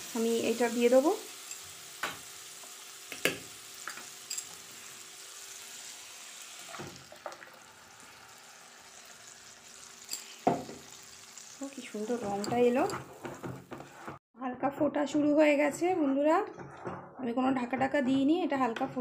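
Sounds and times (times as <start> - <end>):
masala sizzling in a pan: 0.0 - 14.2
puree pouring: 5.6 - 10.8
utensils knocking against pan: 12.2 - 14.2.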